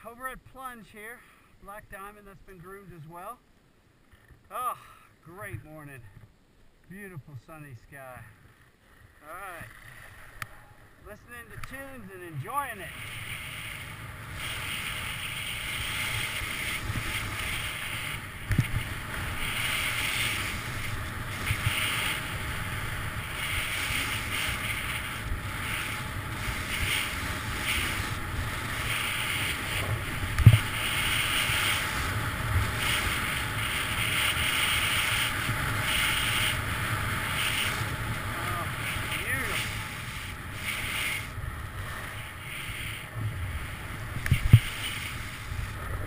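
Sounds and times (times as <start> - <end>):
skis hissing over snow: 9.2 - 46.0
wind on microphone: 12.6 - 46.0.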